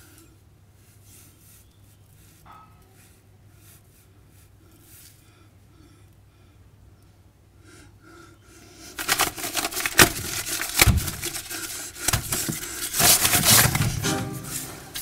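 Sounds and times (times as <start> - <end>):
loud scraping and rustling: 9.0 - 15.0
music with held notes: 13.9 - 15.0.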